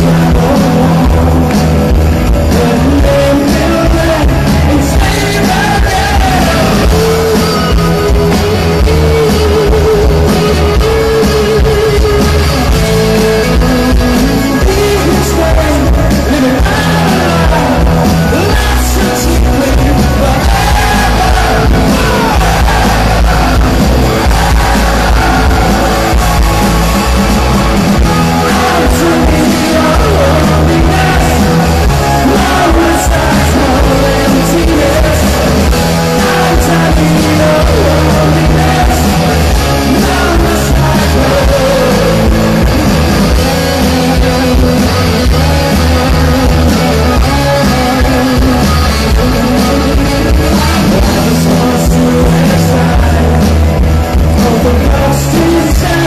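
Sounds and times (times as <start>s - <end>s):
bass guitar: 0.0s - 56.0s
drums: 0.0s - 56.0s
electric guitars: 0.0s - 56.0s
person singing: 0.0s - 56.0s.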